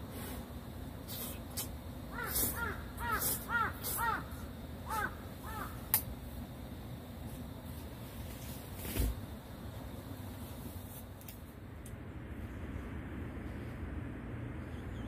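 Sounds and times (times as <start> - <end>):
bird calling: 2.1 - 5.9.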